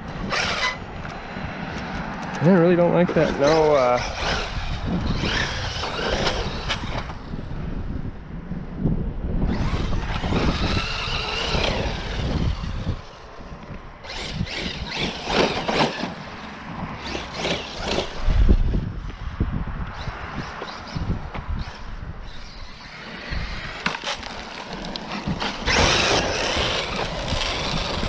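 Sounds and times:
wind rumble on microphone: 0.0s - 28.0s
electric motor whining: 3.1s - 7.4s, 9.4s - 18.8s, 19.8s - 28.0s.

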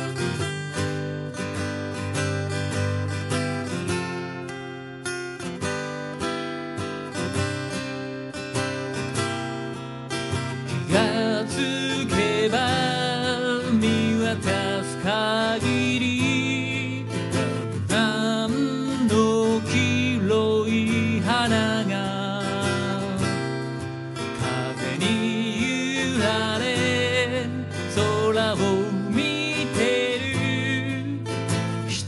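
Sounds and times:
acoustic guitar strumming: 0.0s - 32.0s
man singing: 10.7s - 32.0s.

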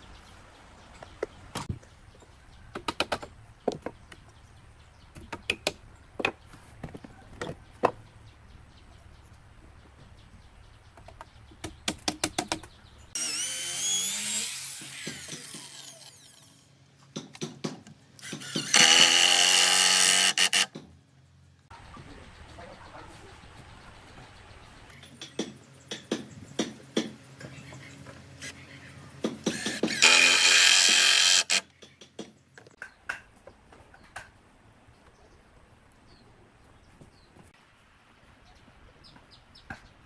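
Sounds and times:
power drill drilling into wood: 13.2s - 16.5s, 18.2s - 20.7s, 29.5s - 31.6s.

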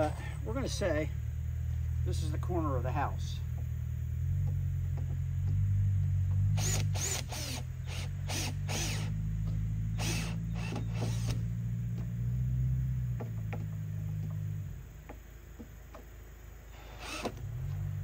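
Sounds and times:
cordless drill running: 6.6s - 9.1s, 10.0s - 11.4s, 16.8s - 17.4s
sharp clicks of drill: 6.6s - 9.1s, 16.8s - 17.4s.

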